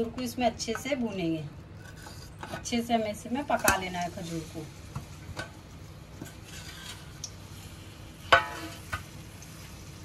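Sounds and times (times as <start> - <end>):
dates sizzling in ghee: 0.0 - 10.0
utensil clanking on metal pan: 8.3 - 9.1.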